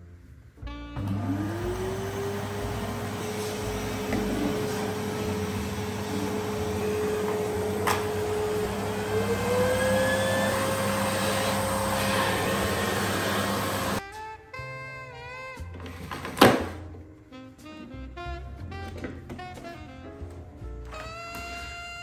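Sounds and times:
music: 0:00.0 - 0:09.9, 0:12.4 - 0:22.0
vacuum cleaner running: 0:01.0 - 0:14.0.

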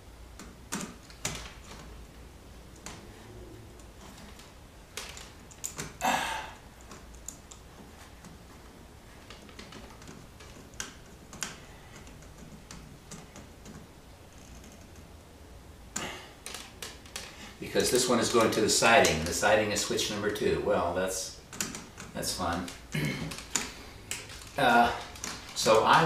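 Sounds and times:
small clicks and taps: 0:09.2 - 0:15.1, 0:21.5 - 0:25.9.

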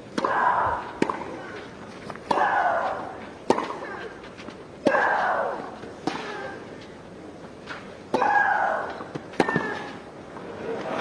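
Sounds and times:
tennis racket hitting ball: 0:02.2 - 0:04.0.

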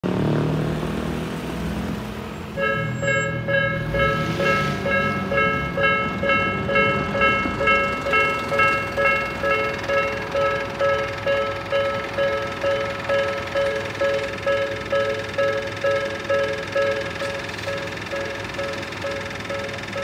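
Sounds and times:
car driving over crossing: 0:00.0 - 0:20.0
level crossing warning bell ringing: 0:02.6 - 0:20.0.

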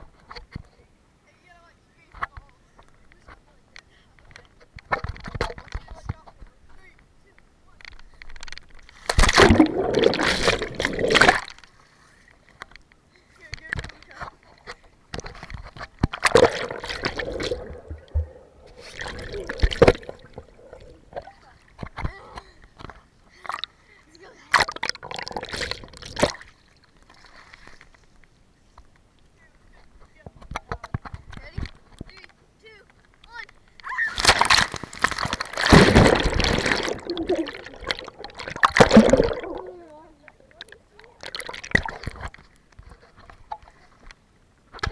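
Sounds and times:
water splashing and sloshing: 0:08.1 - 0:12.6, 0:13.6 - 0:23.8, 0:24.4 - 0:28.0, 0:34.2 - 0:44.1
person jumping into pool: 0:09.0 - 0:11.6, 0:16.1 - 0:22.4, 0:24.5 - 0:26.4, 0:33.9 - 0:42.2
underwater churning and bubbling: 0:09.1 - 0:11.6, 0:16.1 - 0:21.4, 0:24.6 - 0:26.4, 0:35.0 - 0:42.4.

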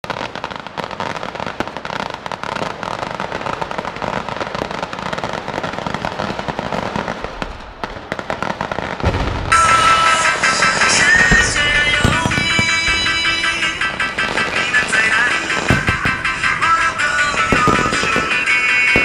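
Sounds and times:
firecrackers crackling: 0:00.0 - 0:19.0
music: 0:09.5 - 0:19.0.

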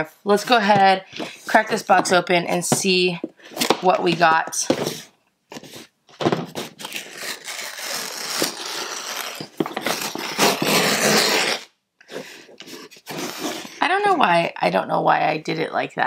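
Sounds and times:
cardboard scraping: 0:00.4 - 0:13.8
packing tape ripping: 0:06.5 - 0:11.7.

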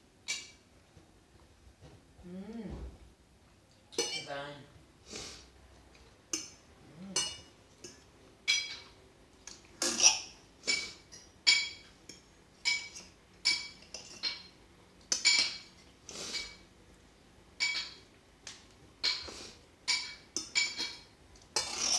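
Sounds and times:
cutlery clinking on plates: 0:07.2 - 0:09.0, 0:09.8 - 0:16.6, 0:17.6 - 0:18.1, 0:19.0 - 0:21.9.

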